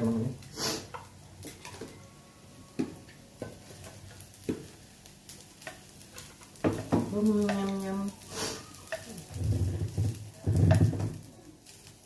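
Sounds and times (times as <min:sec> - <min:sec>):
spatula scraping frying pan: 0:05.6 - 0:11.2.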